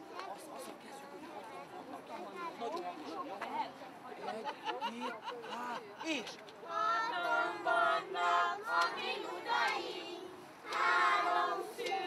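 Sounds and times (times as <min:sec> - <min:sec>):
children singing together: 0:06.8 - 0:12.0.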